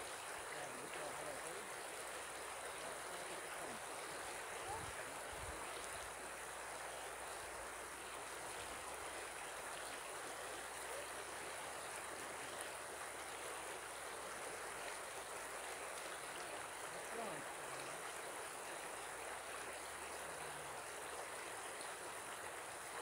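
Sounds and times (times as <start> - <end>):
river water flowing: 0.0 - 23.0.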